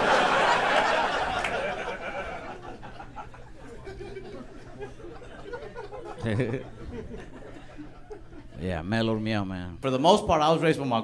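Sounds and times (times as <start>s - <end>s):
audience laughing: 0.0s - 8.6s.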